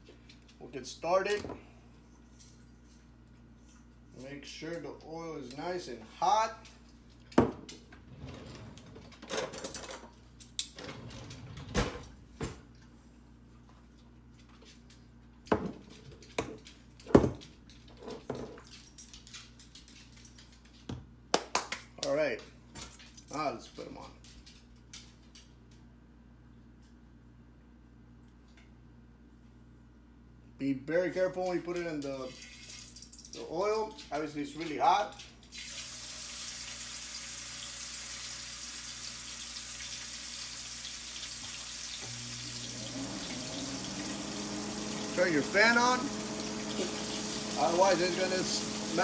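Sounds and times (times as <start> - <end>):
fish sizzling in hot oil: 35.5 - 49.0.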